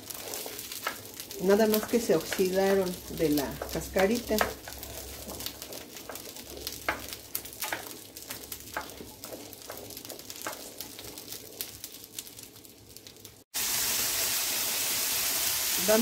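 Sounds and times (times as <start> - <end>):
wooden spoon stirring: 0.0 - 12.6
beans sizzling and crackling: 0.0 - 16.0.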